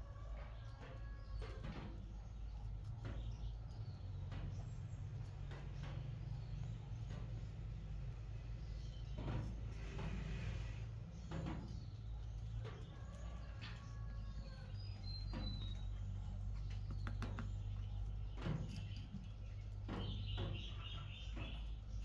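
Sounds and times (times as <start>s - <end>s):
steady low hum: 0.0s - 22.0s
stick scraping along joints: 0.0s - 22.0s
bird chirping: 0.6s - 22.0s
wooden blocks knocking and scraping: 15.0s - 22.0s.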